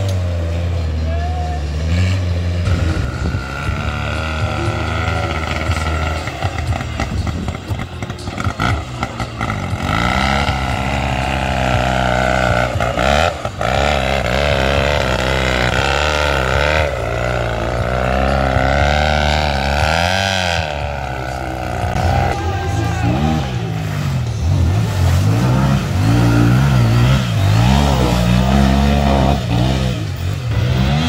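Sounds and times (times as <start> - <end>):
tractor engine under load: 1.6 - 31.0.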